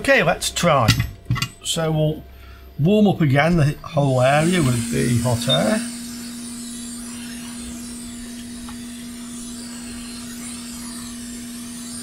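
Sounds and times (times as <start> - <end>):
constant hum: 0.0 - 12.0
hot air blowing: 4.0 - 12.0.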